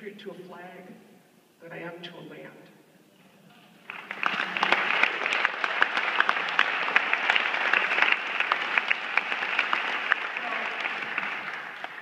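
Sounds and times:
large audience applauding: 3.8s - 12.0s.

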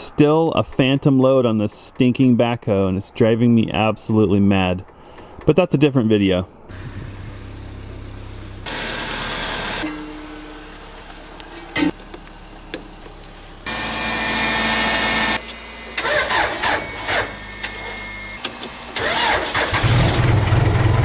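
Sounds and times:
engine cranking and running: 6.7s - 21.0s.

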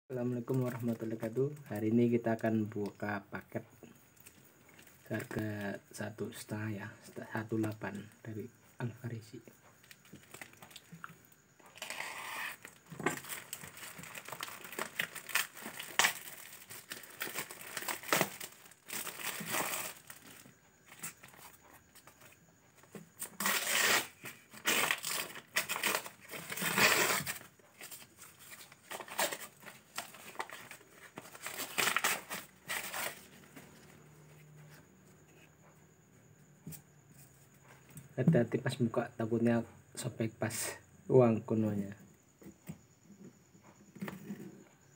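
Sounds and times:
paper envelope rustling and tearing: 11.7s - 20.4s, 23.3s - 33.7s
plastic bag crinkling: 11.7s - 20.5s, 23.4s - 33.4s.

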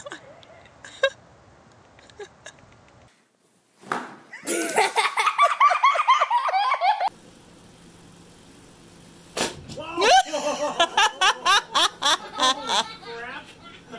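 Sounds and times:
person laughing: 0.0s - 1.2s, 2.0s - 2.7s, 4.4s - 7.1s, 9.8s - 13.9s.

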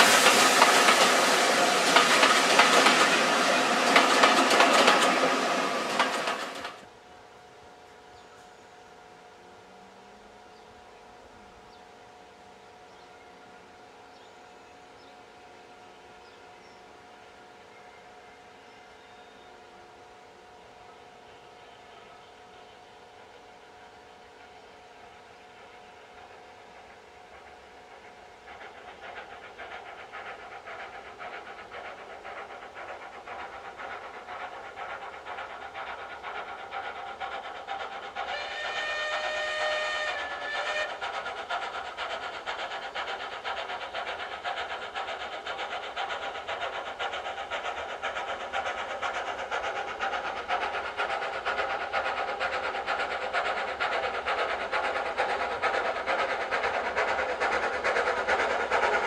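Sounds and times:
steam locomotive chuffing: 0.0s - 6.9s, 19.6s - 59.0s
steam whistle blast: 38.3s - 41.0s.

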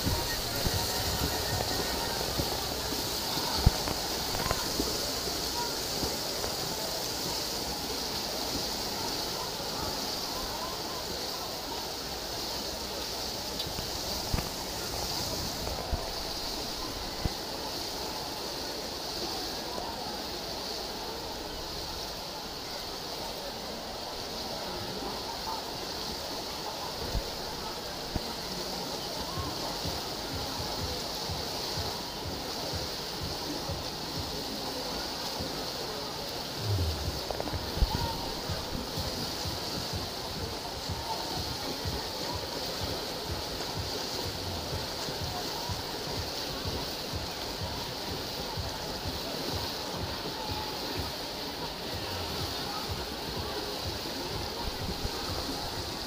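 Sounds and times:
wind rumble on microphone: 0.0s - 6.5s, 36.6s - 41.1s
murmur of spectators: 0.0s - 56.0s
water splashing from swimmers: 0.0s - 56.0s.

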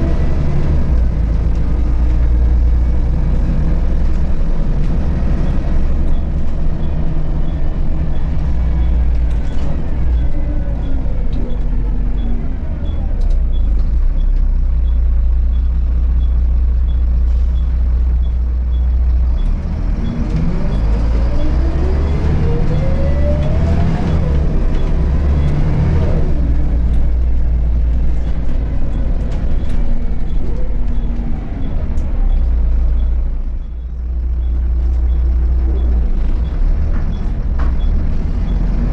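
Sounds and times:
bus diesel engine running: 0.0s - 38.9s
rising engine whine: 18.2s - 38.9s.

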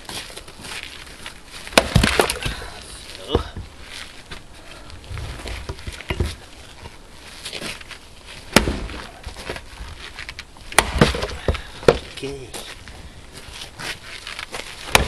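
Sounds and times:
axe chopping log: 1.7s - 3.6s, 8.5s - 9.1s, 10.7s - 12.2s.

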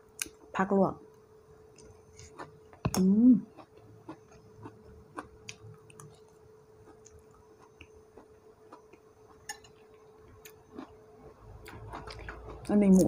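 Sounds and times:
faint steady hum: 0.0s - 13.0s
spoon clinking on a plate: 9.5s - 9.8s.

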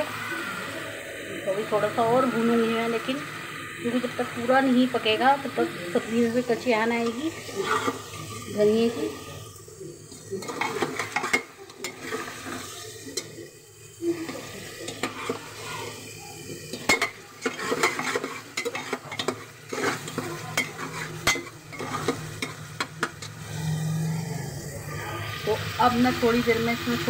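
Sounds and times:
masala sizzling and frying: 0.0s - 27.0s
metal ladle scraping pot: 7.0s - 8.3s, 10.4s - 13.3s, 14.9s - 15.5s, 16.8s - 24.1s.

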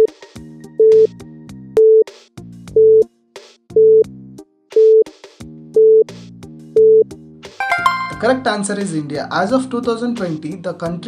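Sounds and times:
synthesizer beat: 7.6s - 8.6s.

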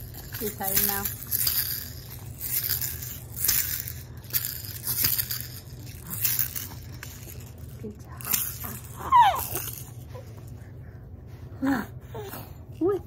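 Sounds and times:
plastic toy rattling: 0.0s - 10.0s.

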